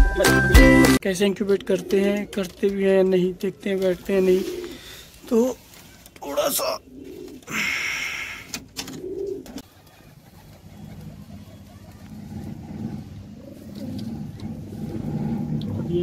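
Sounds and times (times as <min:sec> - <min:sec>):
pigeons cooing: 0:01.5 - 0:16.0
board scraping on shelf: 0:10.8 - 0:16.0.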